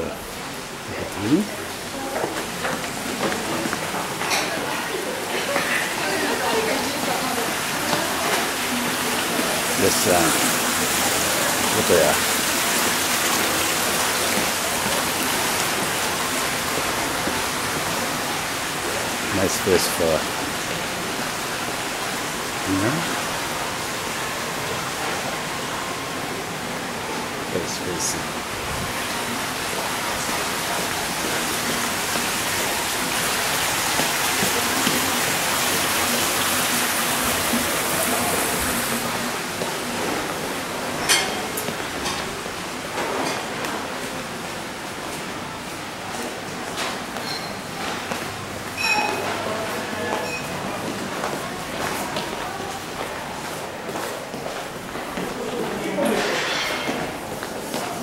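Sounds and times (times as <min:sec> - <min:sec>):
water rushing into pond: 0:06.6 - 0:41.6.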